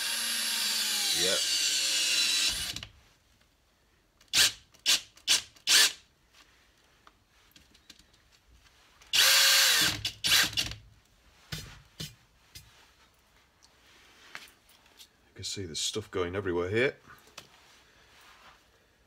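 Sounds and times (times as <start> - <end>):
cordless drill spinning: 0.0 - 2.9, 4.3 - 6.0, 9.1 - 10.8.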